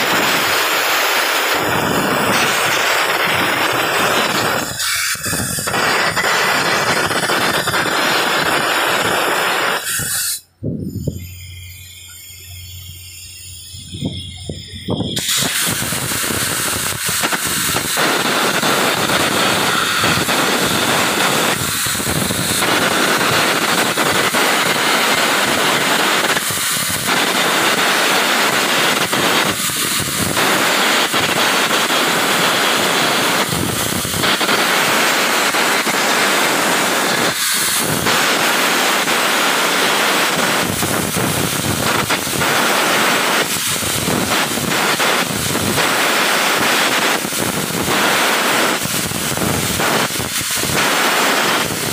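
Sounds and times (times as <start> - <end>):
arc welding crackling hiss: 0.0 - 51.9.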